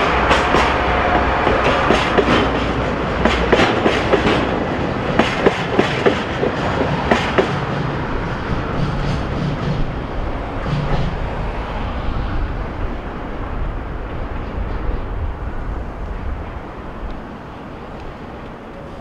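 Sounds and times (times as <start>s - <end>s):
train wheel clicks: 0.0s - 7.8s
freight train rumbling: 0.0s - 19.0s.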